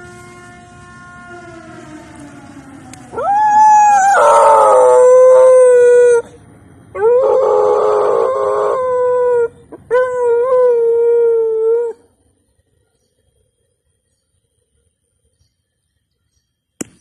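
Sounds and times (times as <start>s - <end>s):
dog howling: 0.0s - 6.3s, 7.0s - 12.0s.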